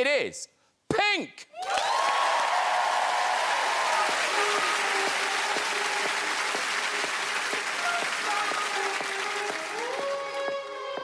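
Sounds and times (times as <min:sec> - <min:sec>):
audience applauding: 0:01.6 - 0:10.8
soft music intro: 0:03.5 - 0:11.0.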